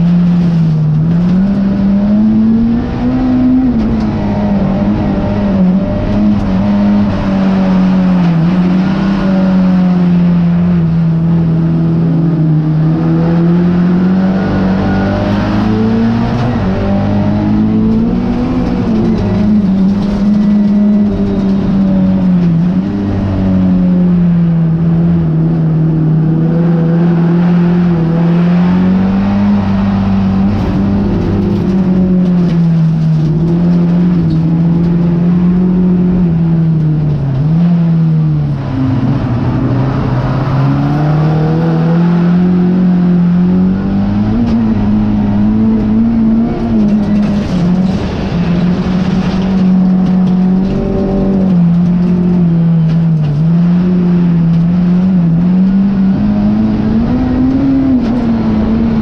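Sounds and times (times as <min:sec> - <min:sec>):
race car engine at high revs: 0:00.0 - 0:59.0.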